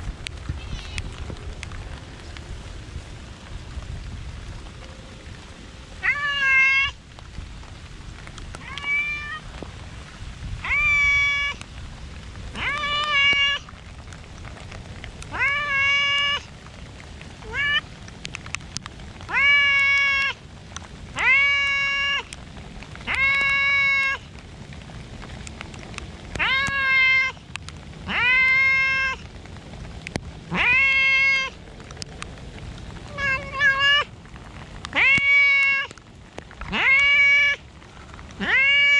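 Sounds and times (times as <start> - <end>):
cat meowing loudly: 6.0 - 7.0, 8.6 - 9.5, 10.6 - 11.6, 12.6 - 13.6, 15.3 - 16.5, 17.4 - 17.8, 19.3 - 20.4, 21.2 - 22.4, 23.0 - 24.2, 26.4 - 27.4, 28.1 - 29.2, 30.5 - 31.6, 33.1 - 34.1, 34.9 - 36.0, 36.7 - 37.7, 38.4 - 38.9.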